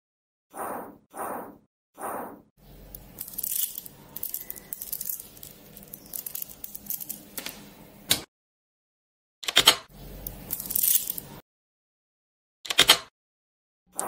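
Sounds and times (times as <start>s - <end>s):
magnet balls clicking and rattling: 2.9s - 7.5s, 10.2s - 11.3s.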